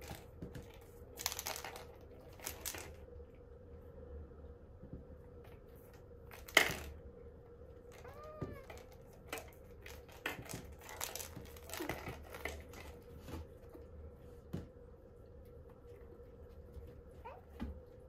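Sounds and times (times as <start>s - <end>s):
kitten mewing: 8.0s - 8.8s.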